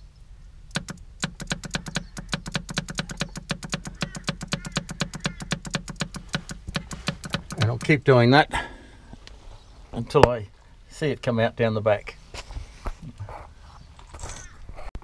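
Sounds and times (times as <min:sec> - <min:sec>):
fuel pump ticking: 0:00.7 - 0:08.2.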